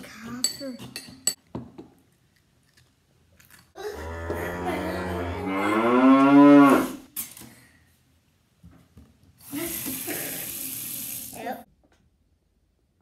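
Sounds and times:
cow mooing: 3.8s - 7.0s.

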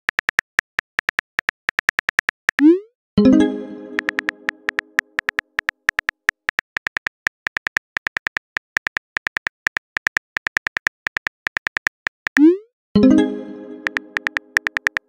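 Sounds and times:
phone keyboard taps clicking: 3.9s - 12.4s, 13.8s - 15.0s.

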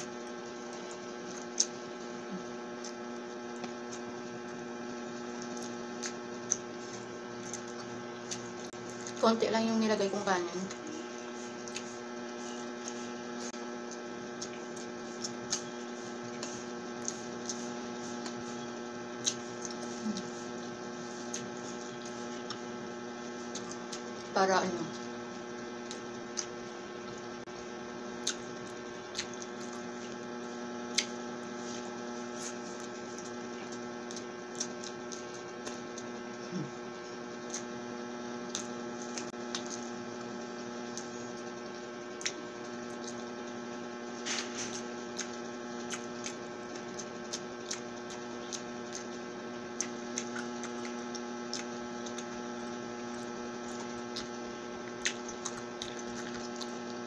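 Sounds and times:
electrical hum: 0.0s - 57.0s
chewing clicks and smacks: 0.6s - 4.6s, 5.3s - 9.2s, 11.6s - 12.0s, 13.8s - 24.3s, 24.9s - 27.3s, 28.2s - 31.3s, 32.5s - 36.4s, 37.4s - 37.8s, 38.4s - 40.0s, 40.8s - 43.6s, 44.7s - 57.0s.

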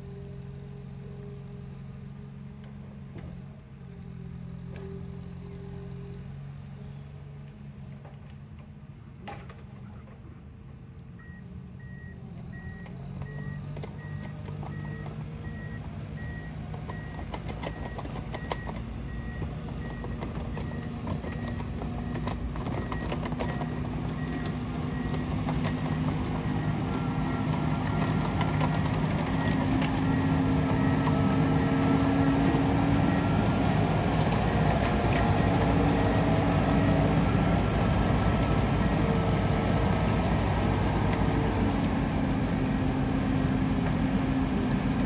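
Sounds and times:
diesel engine running: 13.4s - 45.0s.

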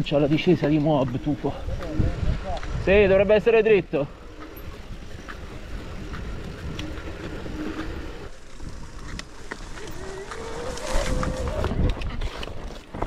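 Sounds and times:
bike clicks and rattles: 0.0s - 13.0s
wind rumbling on microphone: 0.0s - 13.0s
tyres crunching over stones: 2.6s - 13.0s.

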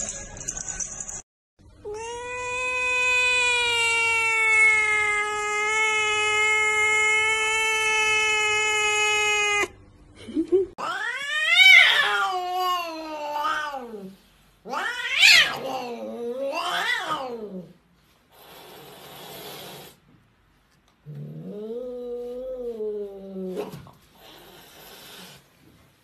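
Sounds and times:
cat yowling: 1.8s - 9.8s, 10.8s - 14.1s, 14.7s - 17.6s
cat hissing: 18.3s - 20.0s.

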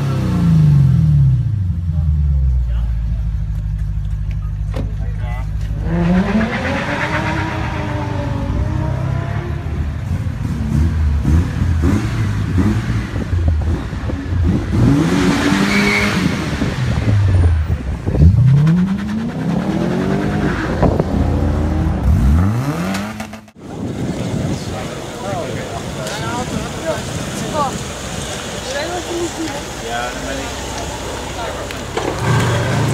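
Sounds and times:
car exhaust accelerating: 0.0s - 25.1s.

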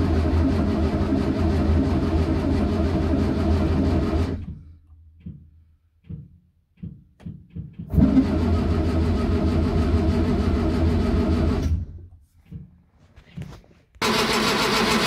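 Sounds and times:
car engine starting and stalling: 0.0s - 4.8s, 7.8s - 12.1s, 14.0s - 15.0s.

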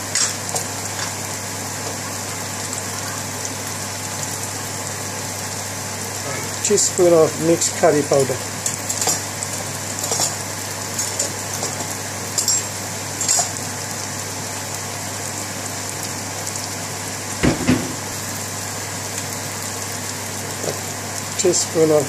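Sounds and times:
onions sizzling in a pan: 0.0s - 22.0s
thump: 17.4s - 18.1s.

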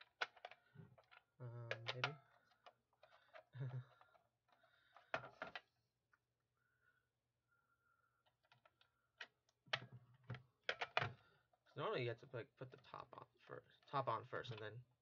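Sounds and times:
light plastic clicks and knocks: 0.0s - 5.7s, 8.3s - 11.3s.

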